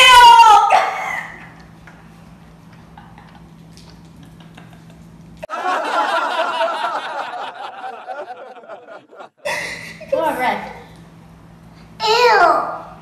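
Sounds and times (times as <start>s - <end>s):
low steady hum: 0.0s - 13.0s
laughter: 2.7s - 10.0s.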